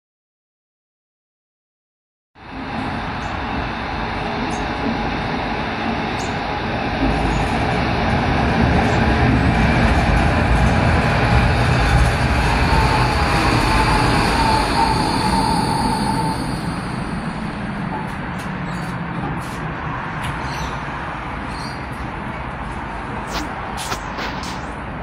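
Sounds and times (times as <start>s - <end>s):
tram wheels rumbling: 2.4s - 25.0s
thin whine: 11.5s - 18.0s.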